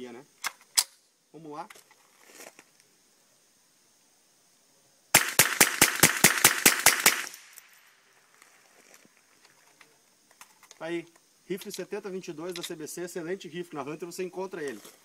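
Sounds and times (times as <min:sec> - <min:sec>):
rifle shots with echo: 0:05.2 - 0:07.5.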